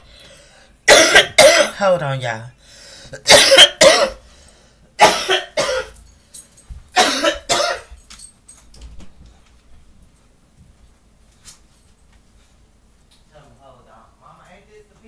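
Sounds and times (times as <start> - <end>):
person coughing hard: 0.9 - 1.8, 3.2 - 4.2, 5.0 - 6.0, 7.0 - 8.0.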